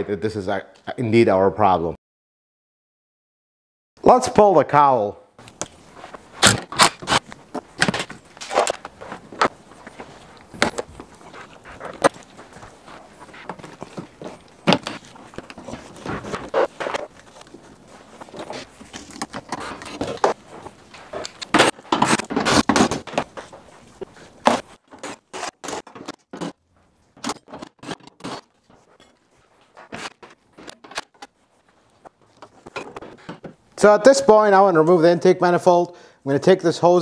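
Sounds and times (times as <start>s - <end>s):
plastic scraping and rattling: 6.4s - 31.4s.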